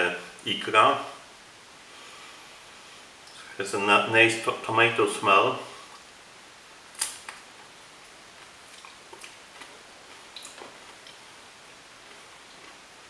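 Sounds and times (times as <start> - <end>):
sharp click: 7.0 - 7.4.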